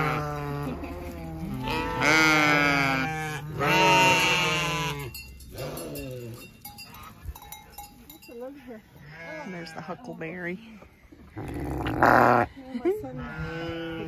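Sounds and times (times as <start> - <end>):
sheep and goats bleating: 0.0 - 6.8, 8.9 - 10.3, 13.1 - 14.0.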